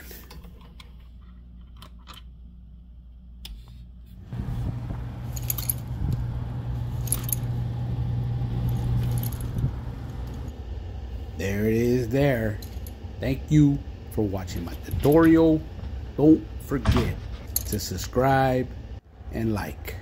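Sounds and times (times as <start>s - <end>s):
air handler humming: 4.2s - 19.9s
light metallic jingles: 5.1s - 6.0s, 6.9s - 7.6s, 8.6s - 10.5s, 17.4s - 17.9s.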